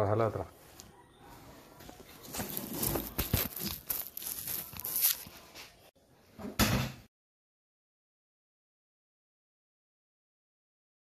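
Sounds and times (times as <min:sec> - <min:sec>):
panels rustling and crinkling: 0:01.8 - 0:05.9.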